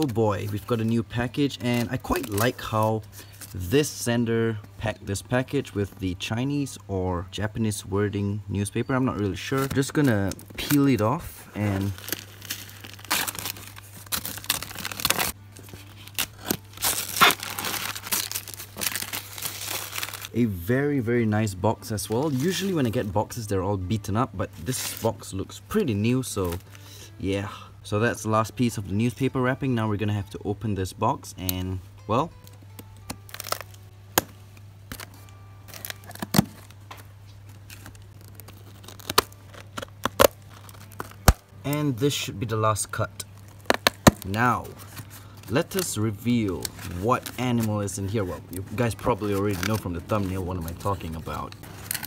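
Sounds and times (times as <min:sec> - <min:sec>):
newspaper tearing and crinkling: 0:00.0 - 0:03.7, 0:09.4 - 0:20.4, 0:21.9 - 0:23.3, 0:24.5 - 0:25.3, 0:33.1 - 0:34.3, 0:34.9 - 0:52.0
scissors snipping packing tape: 0:16.0 - 0:20.3, 0:37.7 - 0:41.8, 0:51.7 - 0:52.0.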